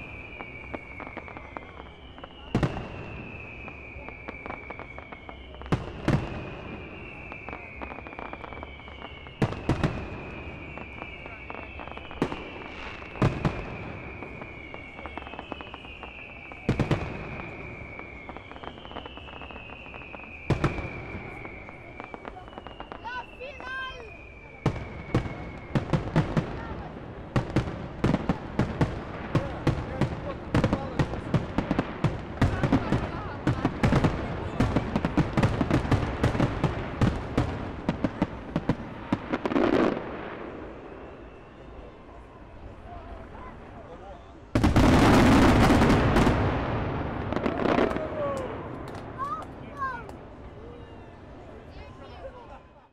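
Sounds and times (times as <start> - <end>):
high descending whistle: 0.0 - 26.2, 39.6 - 42.8
firework crackling: 0.0 - 52.8
firework shells booming: 24.6 - 41.3, 44.5 - 50.3.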